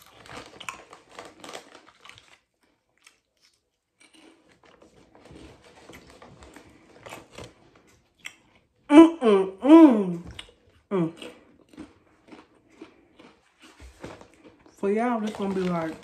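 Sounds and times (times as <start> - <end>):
wrapper crinkling: 0.0 - 3.5, 13.7 - 16.0
snack crunching and chewing: 0.0 - 8.9, 10.2 - 16.0.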